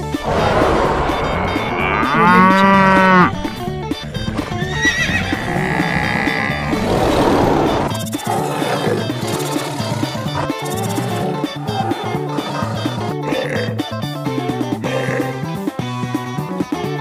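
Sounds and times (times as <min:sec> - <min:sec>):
stampede rumble: 0:00.0 - 0:15.9
high wavering animal call: 0:00.2 - 0:06.8, 0:07.4 - 0:13.7
cow mooing: 0:00.2 - 0:14.0.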